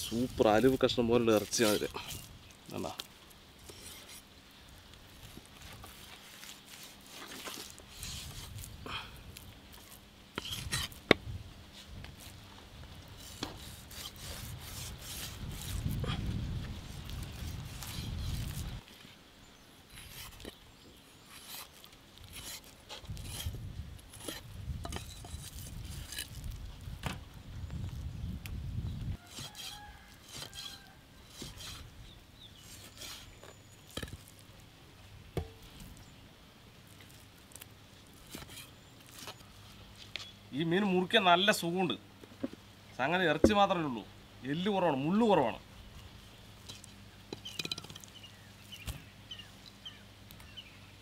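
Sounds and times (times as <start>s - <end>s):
knife cutting and scraping fish: 0.0s - 4.3s, 5.2s - 11.1s, 13.2s - 18.8s, 19.9s - 26.7s, 29.2s - 34.4s, 36.9s - 39.6s.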